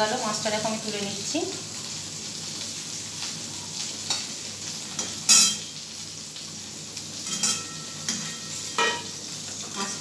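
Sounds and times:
oil sizzling in a wok: 0.0 - 10.0
spatula clinking on metal pan: 5.0 - 5.7, 7.2 - 9.2.

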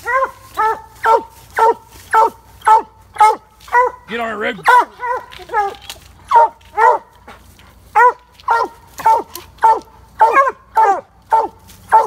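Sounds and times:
hound barking: 0.0 - 12.0.

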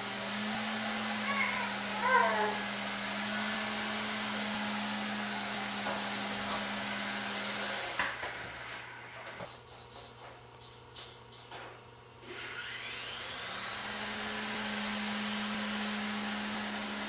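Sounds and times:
toy helicopter whirring: 0.0 - 8.6, 12.2 - 15.7.

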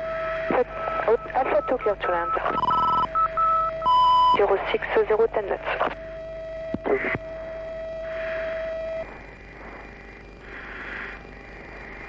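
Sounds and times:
steady hum-like tone: 0.0 - 12.0
radio voice: 0.5 - 2.6, 4.4 - 6.0.

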